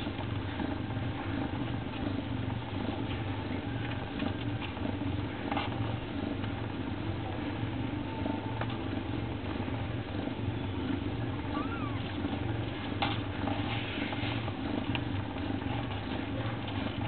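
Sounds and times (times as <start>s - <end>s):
cat purring: 0.0s - 17.0s
faint squeak: 11.4s - 12.2s.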